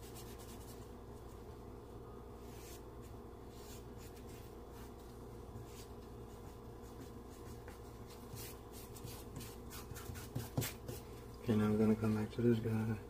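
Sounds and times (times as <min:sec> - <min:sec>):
charcoal scratching on paper: 0:00.0 - 0:00.8, 0:05.6 - 0:11.0
steady low hum: 0:00.0 - 0:13.0.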